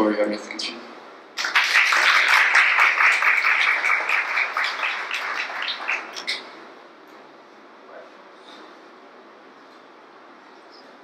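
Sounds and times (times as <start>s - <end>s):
audience applauding: 1.4s - 6.4s.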